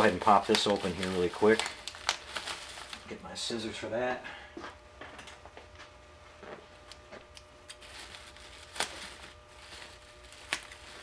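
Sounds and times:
bubble-wrap bag crinkling: 0:00.0 - 0:03.3, 0:07.7 - 0:11.0
scissors cutting plastic: 0:10.2 - 0:11.0.

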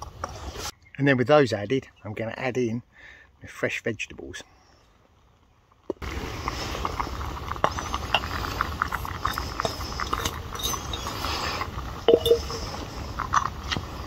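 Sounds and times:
metallic clinks: 0:12.0 - 0:12.6.

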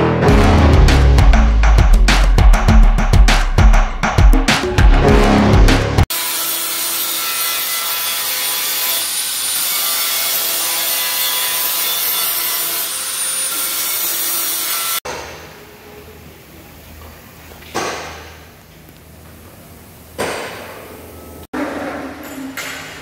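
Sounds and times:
drum-heavy intro music: 0:00.0 - 0:06.1.

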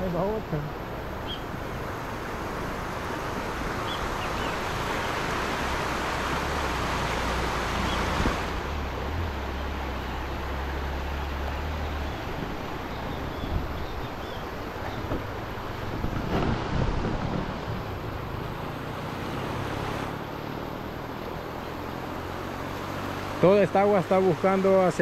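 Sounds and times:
floodwater rushing: 0:00.0 - 0:25.0
wind rumble on microphone: 0:00.6 - 0:20.2.

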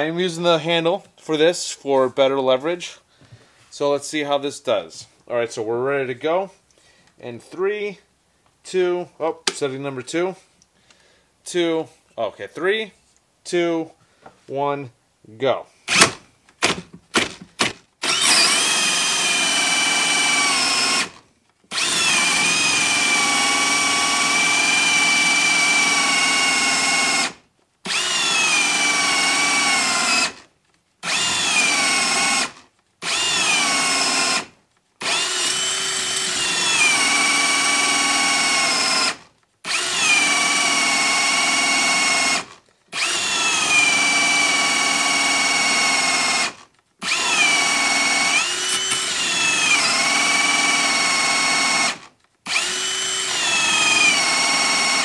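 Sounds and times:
drill motor whining through wood: 0:18.0 - 0:55.0.

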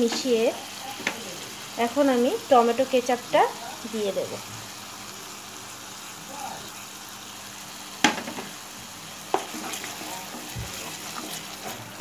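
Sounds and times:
spatula stirring in pan: 0:00.0 - 0:01.7, 0:07.9 - 0:12.0
masala sizzling in oil: 0:00.0 - 0:12.0
spatula knocking against pan: 0:08.0 - 0:08.5, 0:09.3 - 0:09.7.

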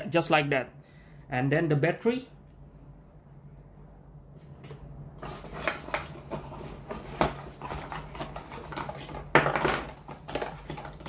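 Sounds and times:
hands rummaging through packaging: 0:05.2 - 0:11.0.

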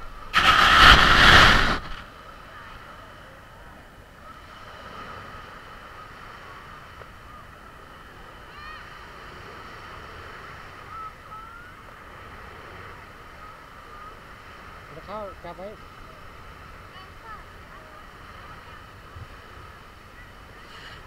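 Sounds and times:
wind hiss: 0:00.0 - 0:02.3.

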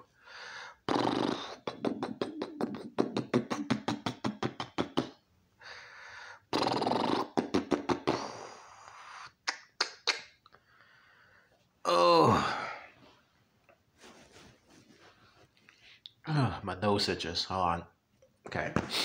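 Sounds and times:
man making mouth clicks: 0:00.9 - 0:05.2, 0:06.5 - 0:10.6.

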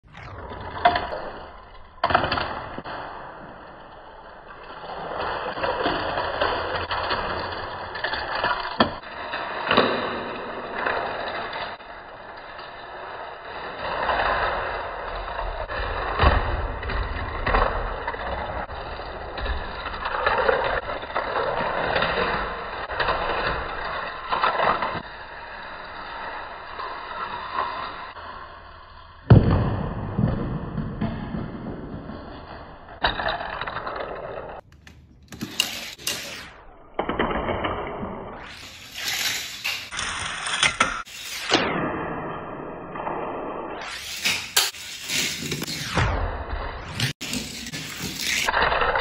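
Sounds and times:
toy cars rolling along plastic track: 0:03.4 - 0:29.3, 0:32.6 - 0:34.7, 0:35.3 - 0:36.4, 0:38.4 - 0:41.6, 0:46.9 - 0:49.0.

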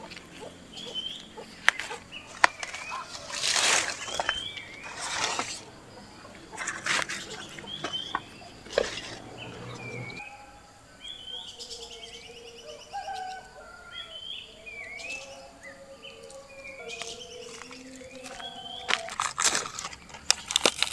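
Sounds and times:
leaves and twigs rustling: 0:00.0 - 0:10.3, 0:16.1 - 0:20.9
sweeping bird calls: 0:00.0 - 0:20.1
small birds chirping: 0:00.0 - 0:20.9.

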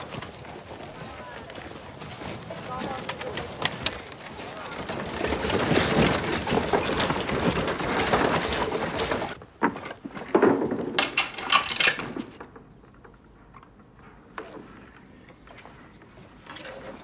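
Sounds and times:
handcart rattling over cobblestones: 0:00.0 - 0:10.2.

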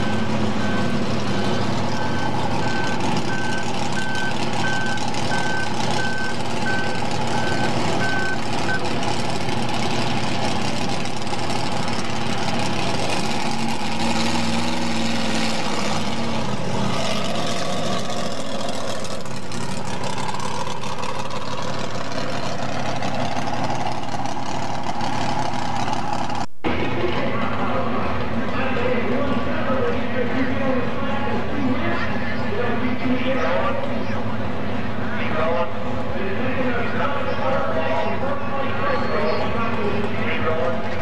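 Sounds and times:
reversing beeper: 0:00.0 - 0:08.9
tractor engine running loud: 0:00.0 - 0:41.0.

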